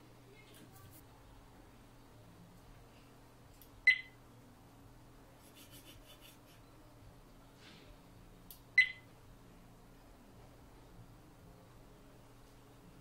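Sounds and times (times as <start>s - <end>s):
short electronic beeps: 3.8s - 4.2s, 8.8s - 9.1s.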